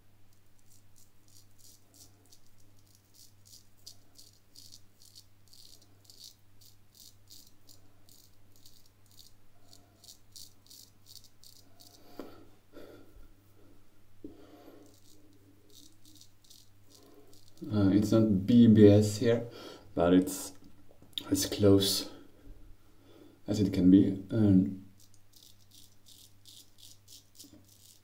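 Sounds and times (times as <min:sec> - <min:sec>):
straight razor scraping stubble: 0:00.4 - 0:12.3, 0:14.7 - 0:18.3, 0:25.0 - 0:28.0.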